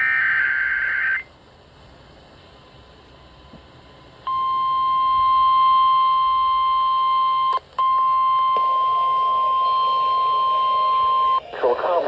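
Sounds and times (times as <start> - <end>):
steady alarm tone: 0.0 - 1.3, 4.2 - 11.4.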